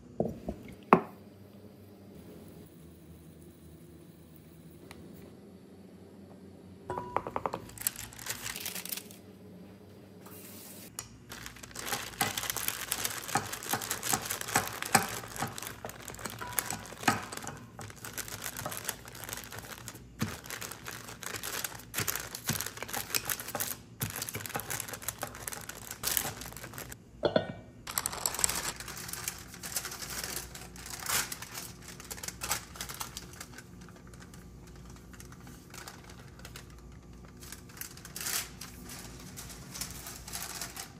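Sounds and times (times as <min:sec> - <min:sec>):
parchment paper crinkling: 0:07.6 - 0:09.2, 0:11.2 - 0:27.0, 0:27.9 - 0:40.9.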